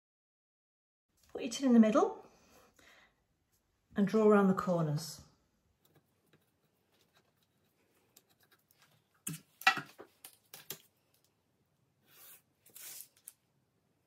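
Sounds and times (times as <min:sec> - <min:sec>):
pencil scratching on paper: 0:06.3 - 0:08.8.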